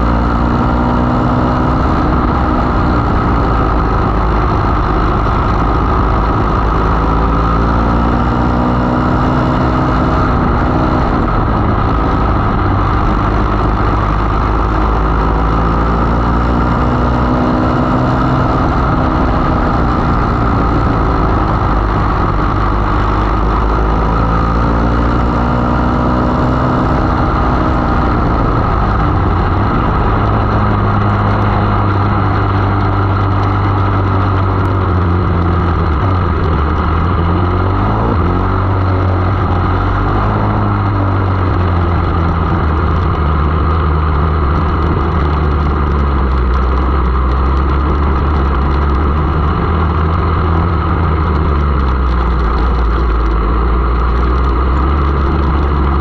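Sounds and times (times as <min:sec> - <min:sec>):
racing car engine running hard: 0:00.0 - 0:56.0.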